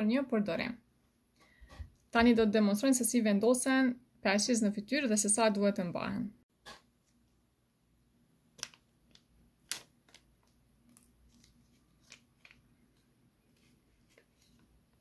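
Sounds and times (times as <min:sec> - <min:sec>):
sachet crinkling and tearing: 0:08.6 - 0:12.7.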